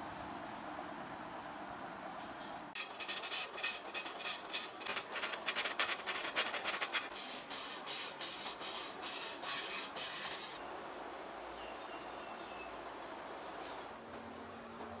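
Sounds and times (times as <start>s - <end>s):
sandpaper scraping steel pipe: 2.8s - 10.6s.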